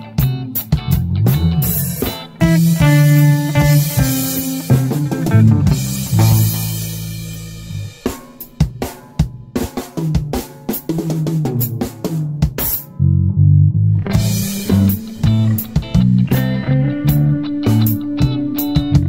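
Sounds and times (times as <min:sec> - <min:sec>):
electric guitar chord ringing: 0:00.0 - 0:08.0, 0:14.0 - 0:19.0
bass guitar notes: 0:00.0 - 0:08.1, 0:11.0 - 0:19.0
drum kit hits: 0:00.0 - 0:13.0, 0:14.1 - 0:19.0
rock band playing: 0:00.0 - 0:13.0, 0:14.0 - 0:19.0.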